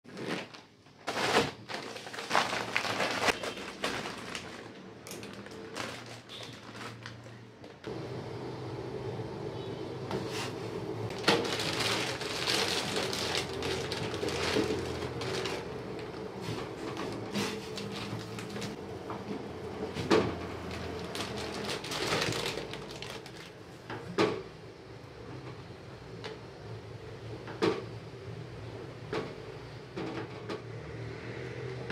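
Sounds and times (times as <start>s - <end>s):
plastic packet crinkling: 0.1s - 7.9s, 11.1s - 18.8s, 20.6s - 23.6s.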